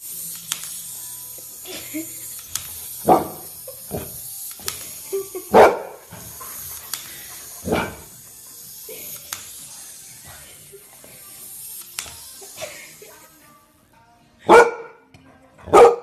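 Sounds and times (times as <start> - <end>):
dog barking: 14.5 - 15.0, 15.7 - 16.0.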